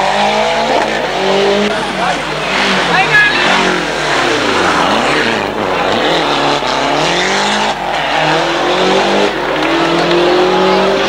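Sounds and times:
rally car engine revving: 0.0s - 11.0s.

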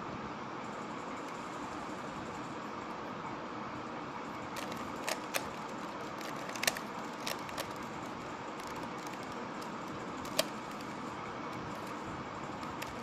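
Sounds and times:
steady background hiss: 0.0s - 13.0s
puzzle cube clicking: 4.5s - 12.0s, 12.6s - 13.0s.

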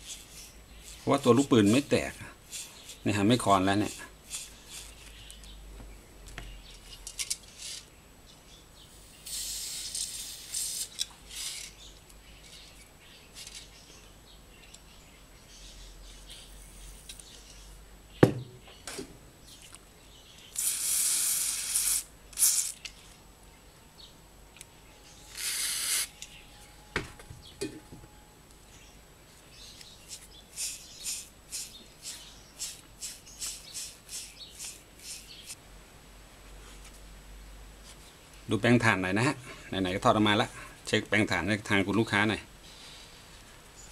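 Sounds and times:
aerosol spray hissing: 9.2s - 10.9s, 20.6s - 22.8s, 25.3s - 26.1s, 30.6s - 35.3s
sharp knock: 18.2s - 18.6s.

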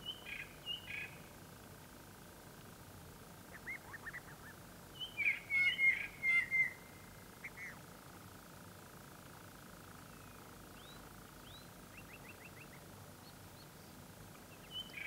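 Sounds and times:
birds chirping: 3.5s - 7.8s, 10.0s - 15.0s
birds repeated calls: 3.5s - 7.8s, 10.1s - 15.0s.

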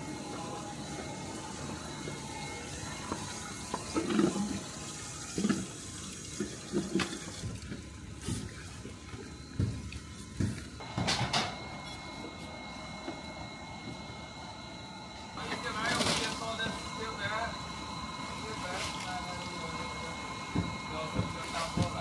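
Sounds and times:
running water: 0.9s - 10.8s.

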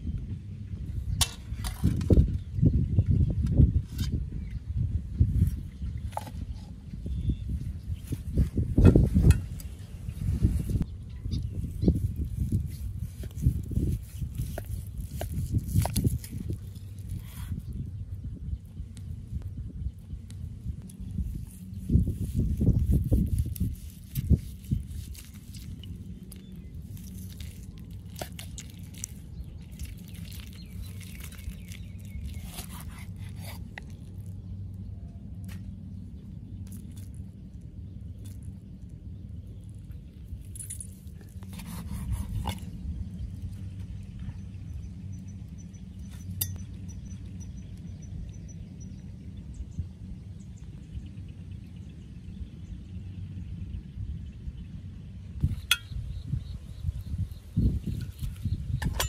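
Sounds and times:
steady low rumble: 0.0s - 59.0s
knife slicing meat: 32.3s - 33.8s, 41.6s - 42.6s
sharp clink: 46.4s - 46.7s, 55.6s - 56.1s.

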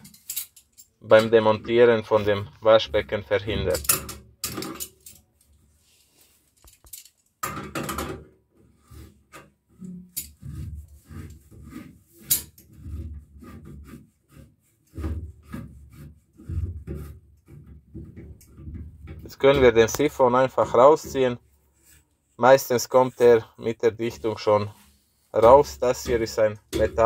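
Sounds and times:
metal scraping on metal: 8.8s - 27.0s.

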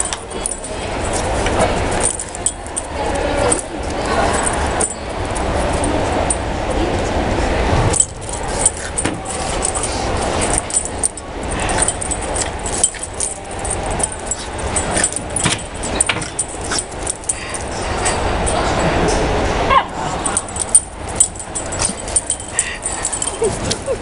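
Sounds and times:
collars jingling: 0.0s - 6.6s, 7.9s - 18.8s, 20.1s - 24.0s
low hall hum: 0.0s - 24.0s
paws clicking on concrete: 8.0s - 18.6s.

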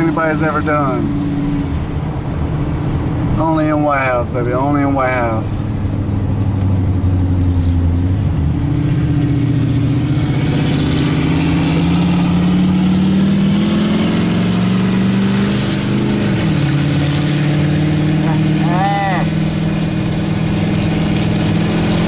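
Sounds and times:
vehicle engine droning: 0.0s - 22.0s.

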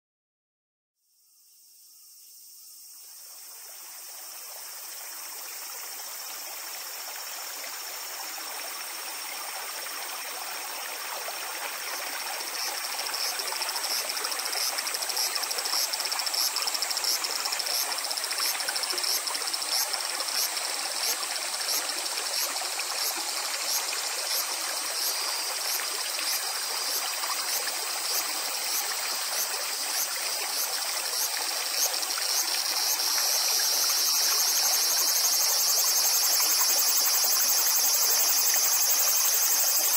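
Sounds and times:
insect song: 1.0s - 39.9s
river water rippling over stones: 3.6s - 39.9s.

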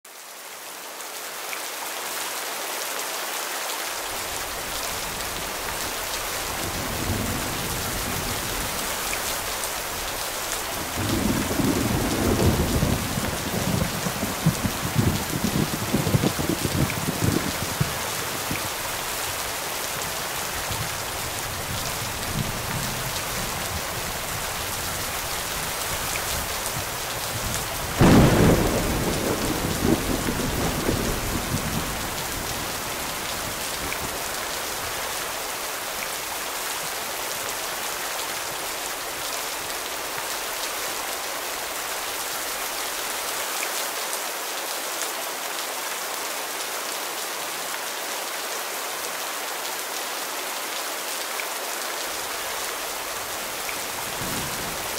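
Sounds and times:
rain hissing: 3.8s - 43.4s
rolling thunder rumble: 10.8s - 18.9s, 21.6s - 34.2s
thunder clap: 27.4s - 32.6s.

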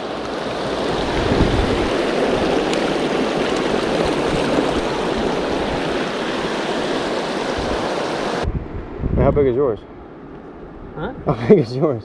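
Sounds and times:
stream running over rocks: 0.0s - 8.5s.

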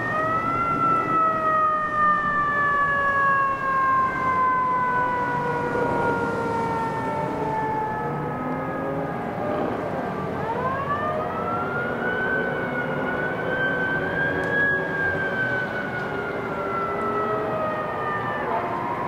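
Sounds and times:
lower siren: 0.0s - 19.0s
siren wailing: 0.0s - 19.0s.

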